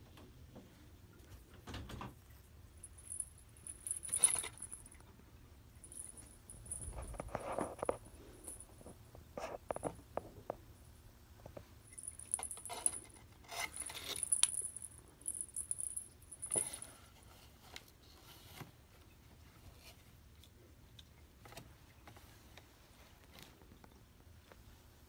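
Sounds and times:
light metallic jingling: 2.8s - 5.0s, 5.7s - 8.9s, 11.8s - 16.9s.

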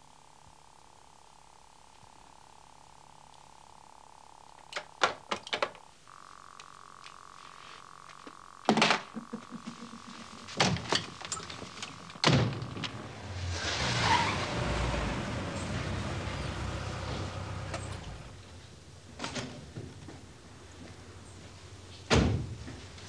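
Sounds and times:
sharp knocks and thuds: 8.7s - 13.0s
car engine rumble: 9.2s - 18.6s.

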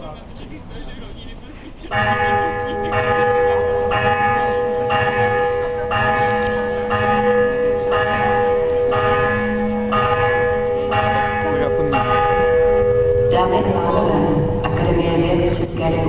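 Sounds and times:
large bell tolling: 1.9s - 16.0s.

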